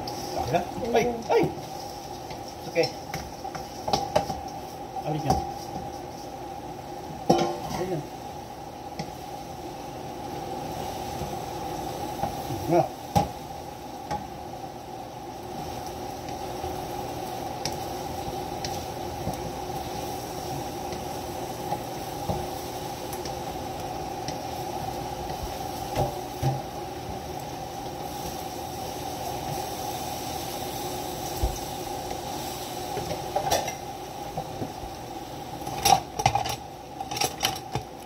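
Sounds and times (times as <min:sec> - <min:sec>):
spatula stirring fish in wok: 0:01.6 - 0:06.4.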